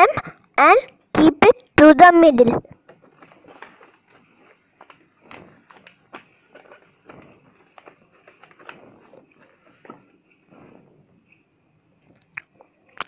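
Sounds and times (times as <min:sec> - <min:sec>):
paper crinkling and rustling: 0:02.8 - 0:11.4.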